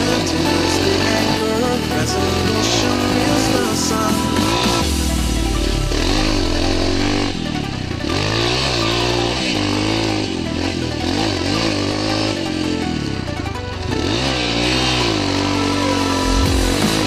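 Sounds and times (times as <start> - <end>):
dirt bike engine revving: 0.0 - 17.0.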